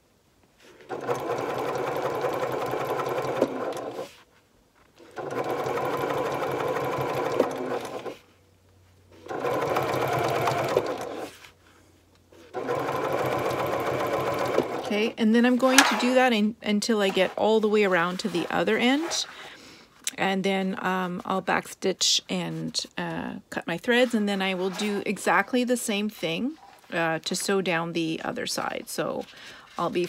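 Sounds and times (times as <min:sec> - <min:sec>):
electric sewing machine stitching: 0:00.8 - 0:04.2, 0:05.0 - 0:08.2, 0:09.2 - 0:11.4, 0:12.4 - 0:15.1.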